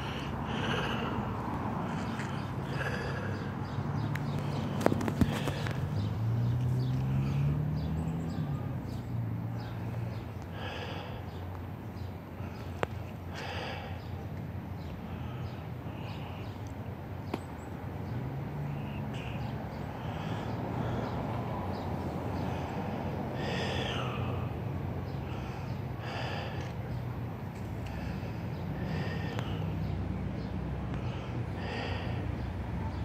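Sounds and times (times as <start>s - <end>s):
distant calls: 0.0s - 33.0s
low hum of traffic: 0.0s - 33.0s.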